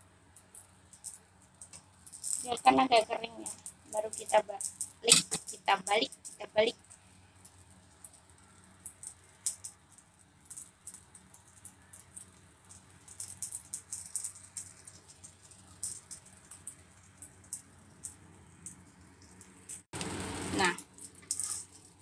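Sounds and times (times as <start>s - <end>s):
oil crackling and spitting in a pan: 0.0s - 22.0s.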